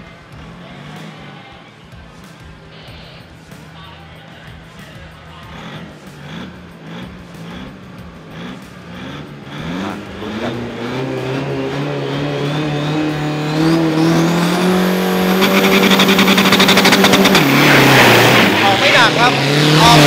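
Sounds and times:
race car engine revving: 0.0s - 20.0s
engine crackle: 4.6s - 20.0s.

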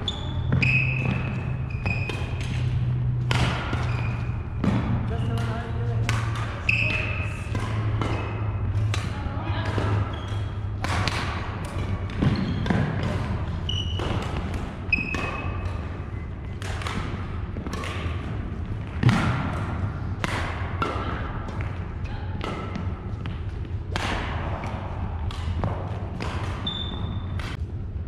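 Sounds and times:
shoes squeaking: 0.0s - 10.8s, 11.8s - 16.6s, 26.6s - 27.6s
rackets hitting shuttlecock: 0.0s - 27.6s.

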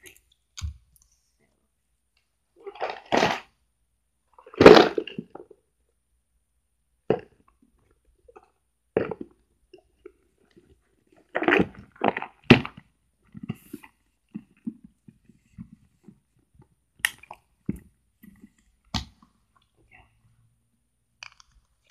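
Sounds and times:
small objects knocking and clattering: 4.4s - 5.6s, 21.2s - 21.9s.

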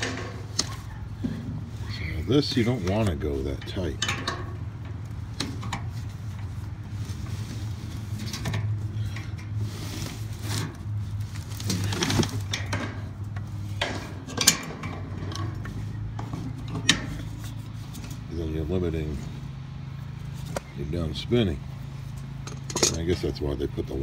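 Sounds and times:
pliers clinking and scraping metal: 22.4s - 23.3s.

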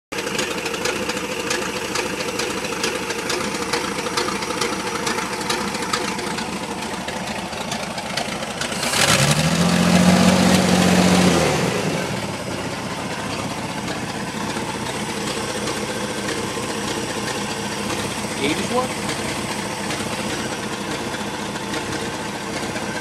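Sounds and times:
petrol engine idling and revving: 0.1s - 23.0s.

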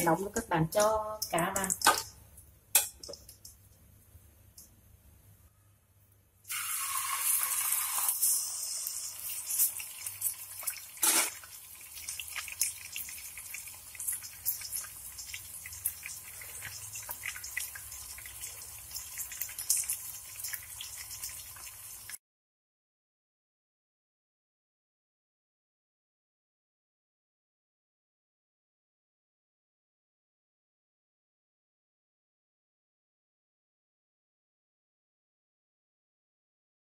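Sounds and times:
oil sizzling in a wok: 6.4s - 22.2s
oil crackling and popping: 6.5s - 22.2s.

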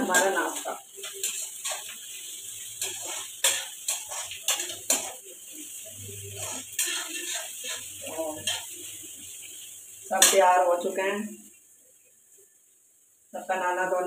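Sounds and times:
steel spatula scraping a pan: 0.0s - 9.0s.

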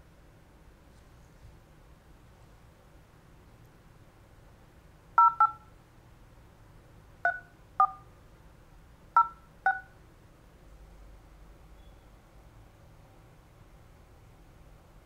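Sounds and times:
telephone keypad tones: 5.2s - 5.7s, 7.3s - 8.1s, 9.2s - 10.0s.

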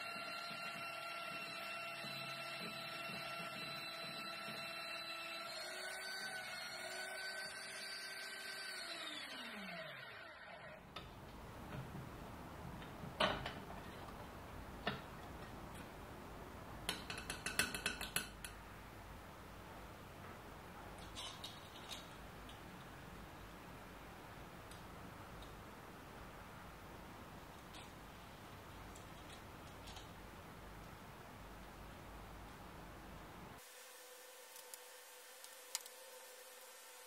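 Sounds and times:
drill press motor humming: 0.0s - 10.8s
small metal parts clattering: 21.0s - 22.2s.

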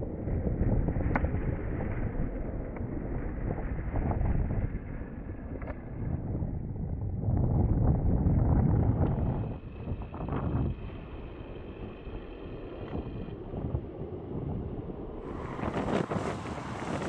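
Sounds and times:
turboprop aircraft drone: 0.0s - 17.0s
wind on microphone: 0.0s - 17.0s.

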